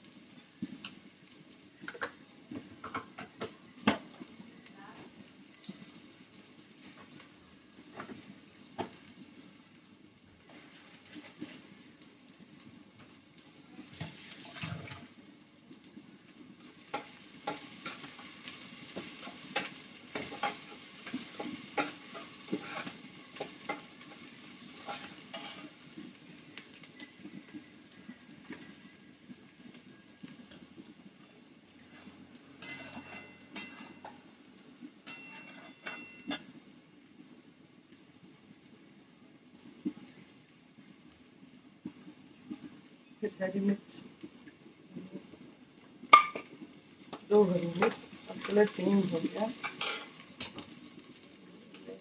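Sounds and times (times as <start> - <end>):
onions sizzling in oil: 0.0 - 52.0
spatula scraping a pot: 19.0 - 25.8, 31.8 - 34.1, 35.1 - 36.4.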